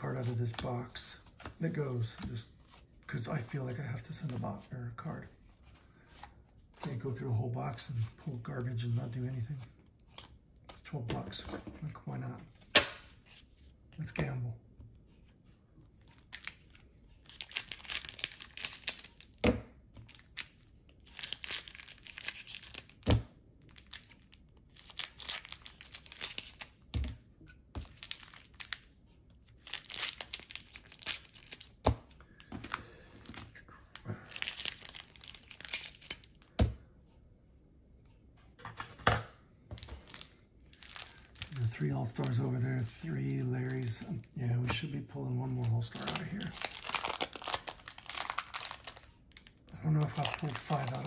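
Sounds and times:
plastic wrapping crinkling: 0:34.2 - 0:36.4, 0:39.8 - 0:44.2, 0:45.5 - 0:51.0.

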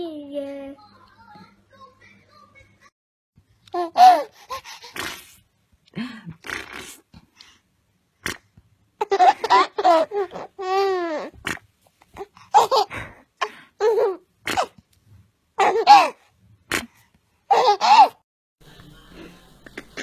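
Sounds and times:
baby giggling: 0:03.8 - 0:05.2, 0:09.0 - 0:11.4, 0:12.5 - 0:13.1, 0:13.8 - 0:14.8, 0:15.6 - 0:16.2, 0:17.5 - 0:18.2.

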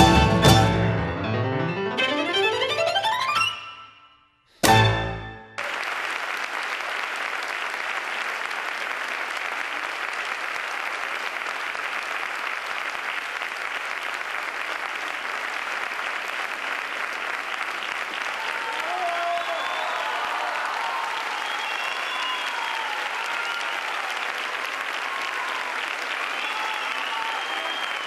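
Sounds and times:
music chord ringing: 0:00.0 - 0:05.6
audience applause: 0:04.8 - 0:28.0.

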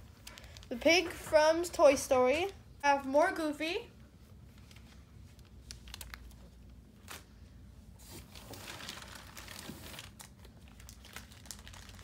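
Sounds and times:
plastic packaging crinkling: 0:04.6 - 0:07.3, 0:08.0 - 0:12.0.

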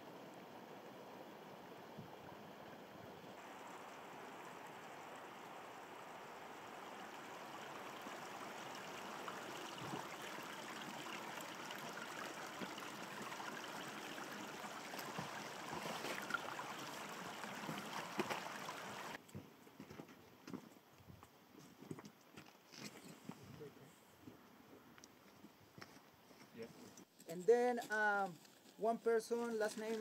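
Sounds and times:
stream water rushing over rock: 0:03.3 - 0:19.2.

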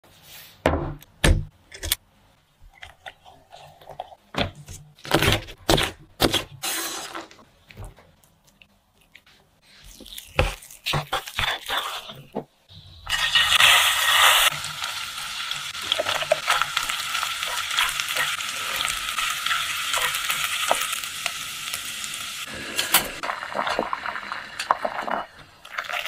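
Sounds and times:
rustling scrape: 0:00.1 - 0:00.6.

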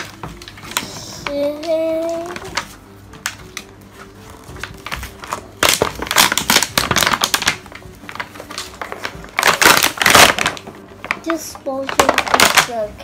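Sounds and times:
faint background music: 0:00.0 - 0:13.0
plastic packaging crinkling: 0:00.0 - 0:13.0.

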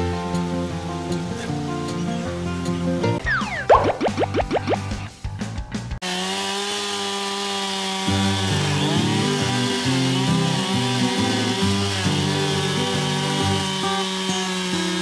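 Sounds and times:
chainsaw cutting log: 0:06.0 - 0:15.0.

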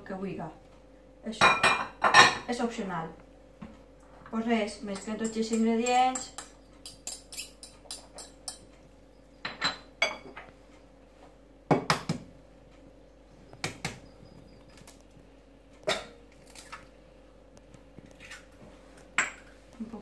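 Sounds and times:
knocks and clinks on crockery: 0:04.9 - 0:08.7, 0:09.4 - 0:10.5
fork scraping ceramic bowl: 0:06.2 - 0:08.6.

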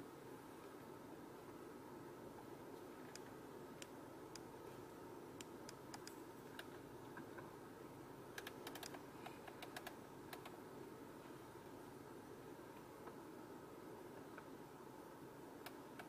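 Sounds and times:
low steady hum: 0:00.0 - 0:16.0
faint control clicks: 0:02.8 - 0:04.5, 0:05.4 - 0:07.5, 0:08.4 - 0:10.6, 0:15.6 - 0:16.0.

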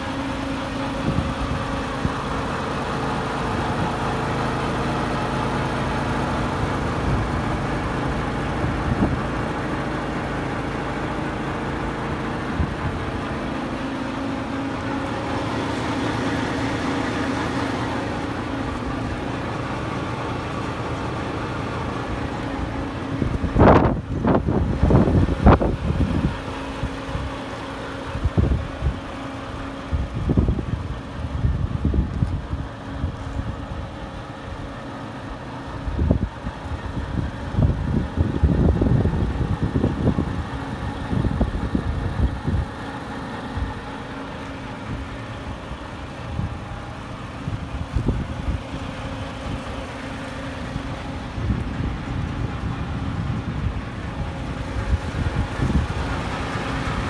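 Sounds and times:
diesel truck engine idling: 0:00.0 - 0:57.0
wind buffeting microphone: 0:22.9 - 0:27.4, 0:29.9 - 0:33.8, 0:35.8 - 0:42.8, 0:46.0 - 0:49.8, 0:50.8 - 0:57.0.

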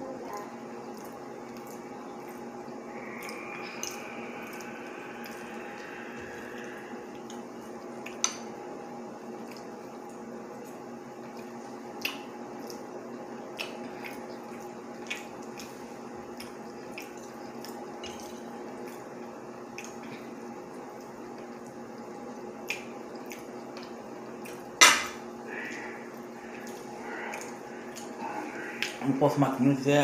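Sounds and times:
steady background hum: 0:00.0 - 0:30.0
wet chewing: 0:00.3 - 0:08.4, 0:09.4 - 0:29.0.

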